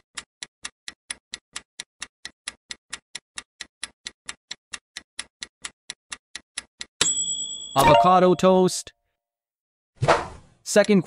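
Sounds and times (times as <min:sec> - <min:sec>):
countdown timer ticking: 0:07.8 - 0:08.8.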